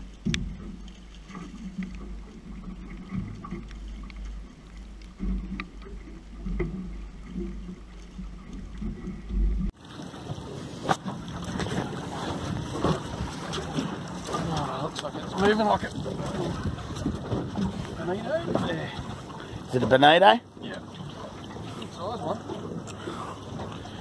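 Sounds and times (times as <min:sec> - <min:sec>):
wind rumbling on microphone: 0:00.0 - 0:19.9
water around boat: 0:00.0 - 0:24.0
gear knocking against boat: 0:11.5 - 0:20.0.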